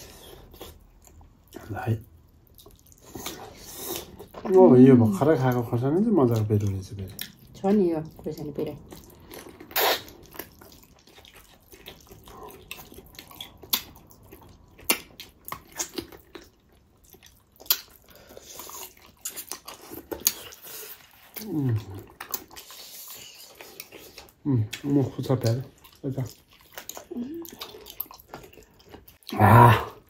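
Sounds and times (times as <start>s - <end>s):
slurping and lip-smacking: 8.8s - 16.6s.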